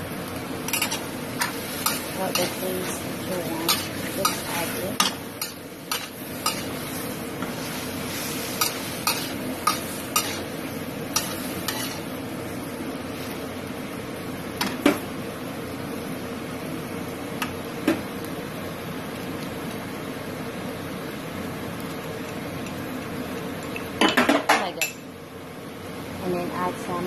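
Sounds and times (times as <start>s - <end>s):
vegetables sizzling in a wok: 0.0s - 27.0s
metal spatula clinking and scraping: 3.6s - 6.8s, 11.2s - 12.0s.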